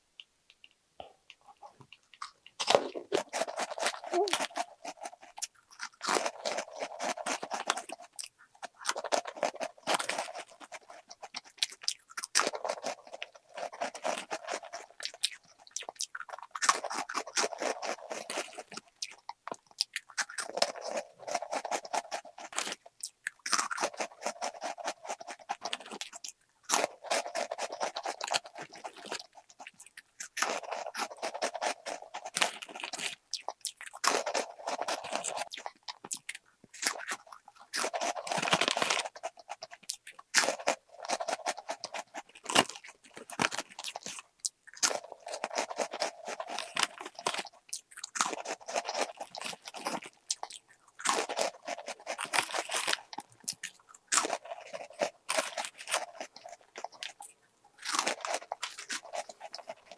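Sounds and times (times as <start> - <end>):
person chewing crunchy snack: 1.3 - 59.9.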